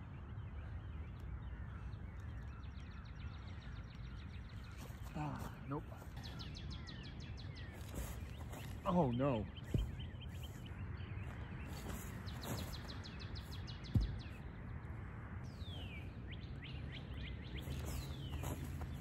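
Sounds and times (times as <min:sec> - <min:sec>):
songbirds chirping: 0:00.0 - 0:19.0
dull thump: 0:13.8 - 0:14.4.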